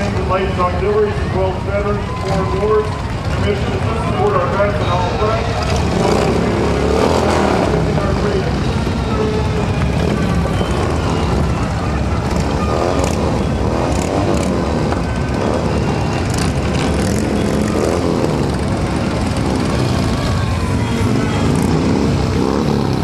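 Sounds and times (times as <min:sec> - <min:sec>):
motorcycles riding past: 0:00.0 - 0:23.0.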